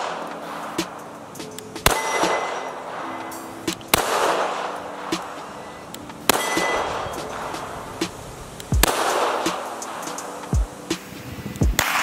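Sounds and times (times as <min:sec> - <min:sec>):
pistol shots with echo: 0:00.0 - 0:01.1, 0:01.7 - 0:05.6, 0:06.2 - 0:07.8, 0:08.8 - 0:10.4, 0:11.8 - 0:12.0.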